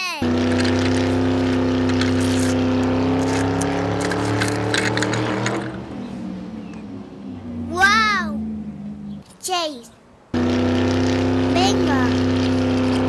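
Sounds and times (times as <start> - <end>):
snacks crunching under wheels: 0.4 - 5.8.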